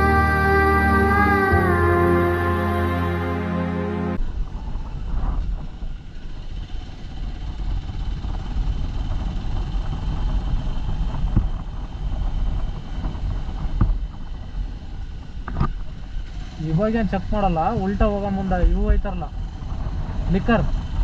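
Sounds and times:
motorcycle engine cruising: 4.2 - 21.0
wind rumble on microphone: 4.2 - 21.0.

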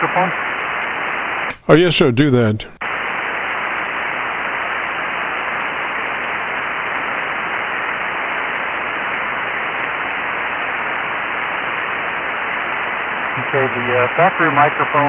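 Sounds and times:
radio band noise hiss: 0.0 - 15.0.

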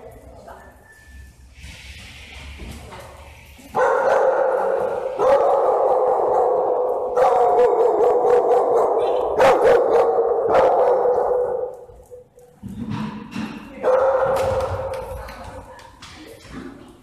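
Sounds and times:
dogs barking: 3.7 - 12.2, 13.8 - 15.0.

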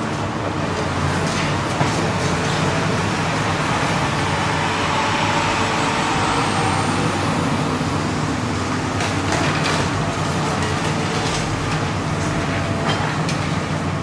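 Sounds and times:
excavator diesel engine humming: 0.0 - 14.0
passing street traffic: 0.5 - 11.6.

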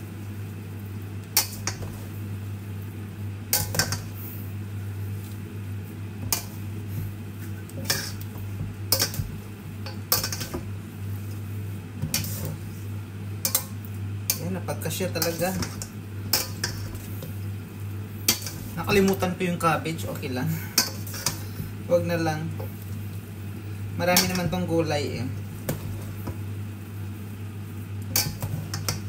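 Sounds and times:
steady low hum: 0.0 - 29.0
metal tongs clinking on steel bowl: 8.9 - 10.6, 13.4 - 17.0, 18.3 - 19.3, 20.8 - 21.4, 24.1 - 24.6, 28.1 - 29.0.

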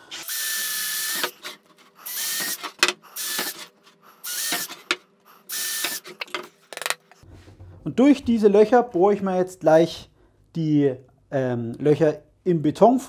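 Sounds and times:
cordless drill boring wood: 0.1 - 6.1.

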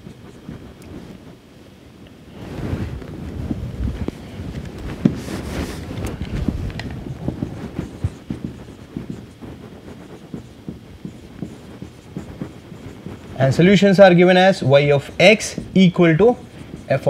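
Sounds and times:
rustling and knocking: 2.4 - 17.0
marker writing on whiteboard: 4.9 - 17.0.

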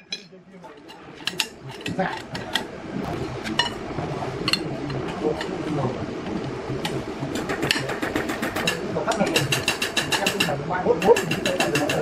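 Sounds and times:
low background noise: 0.0 - 12.0
sharp clicks: 6.3 - 12.0.

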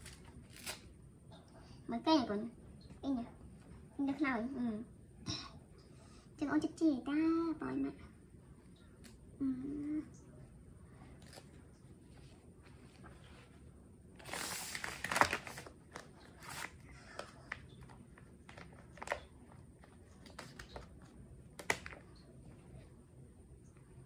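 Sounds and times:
diaper and wipes packet rustling: 14.2 - 22.1.

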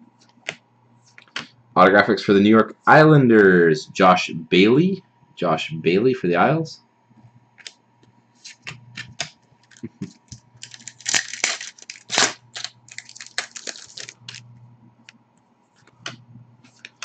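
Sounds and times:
faint steady hum: 0.0 - 17.0
cards flicking and snapping: 8.5 - 14.4.

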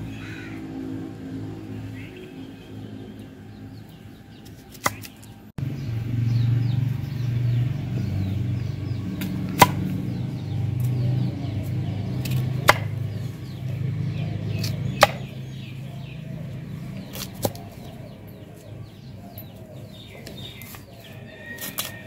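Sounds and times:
knife chopping on wooden block: 9.5 - 9.8, 12.2 - 13.0, 14.6 - 15.3.

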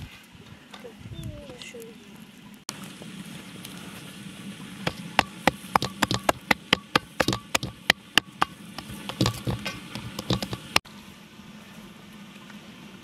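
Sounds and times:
hand slapping dough: 4.9 - 10.8.

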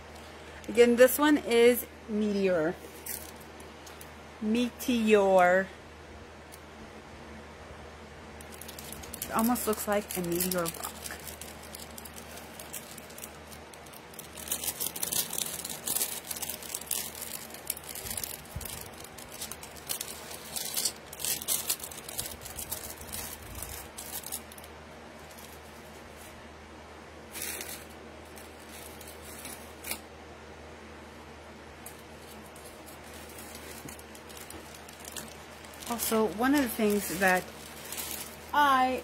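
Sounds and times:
plastic bags crinkling: 2.8 - 4.1, 8.4 - 26.4, 27.3 - 30.0, 31.8 - 39.0.

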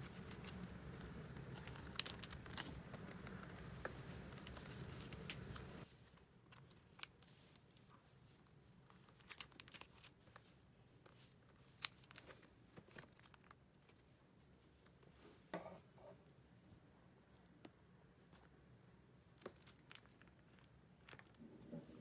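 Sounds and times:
plastic binder sleeves crinkling: 0.0 - 14.2, 19.2 - 22.0.

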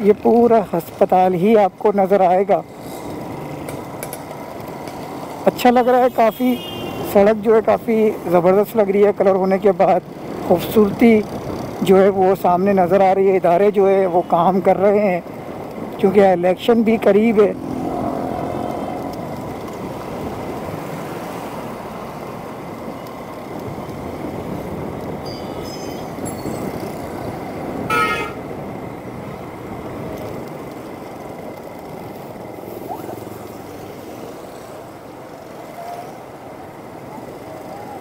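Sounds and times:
road traffic noise: 0.0 - 38.0
vehicle horn honking: 27.9 - 28.4.

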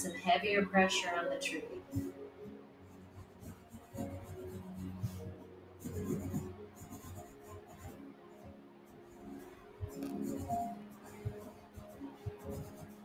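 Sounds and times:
soft background music: 0.0 - 13.0
pencil scratching on paper: 2.9 - 8.0, 8.9 - 13.0.

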